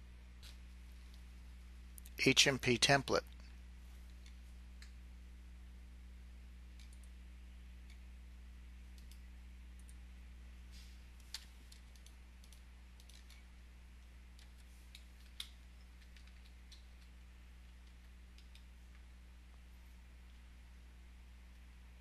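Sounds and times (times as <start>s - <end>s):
low electrical hum: 0.0s - 22.0s
faint clicks: 6.7s - 7.2s, 8.9s - 9.2s, 9.8s - 10.0s, 14.4s - 19.1s.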